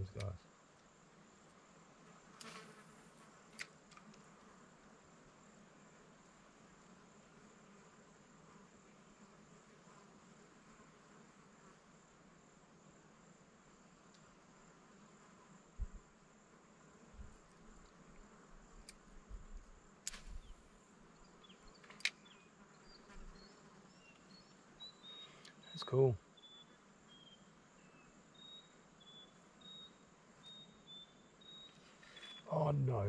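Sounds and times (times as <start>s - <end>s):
high-pitched insect chorus: 18.8s - 33.0s
sharp clicks: 21.8s - 22.2s.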